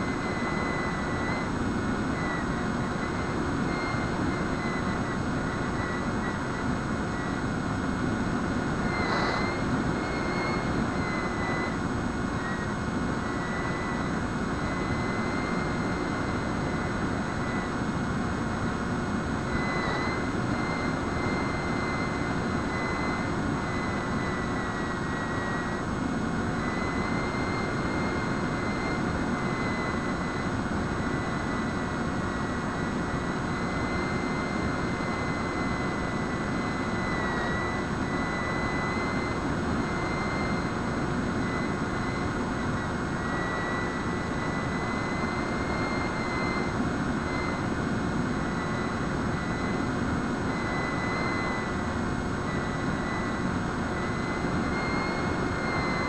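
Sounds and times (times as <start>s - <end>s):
model plane motor whine: 26.5s - 56.0s.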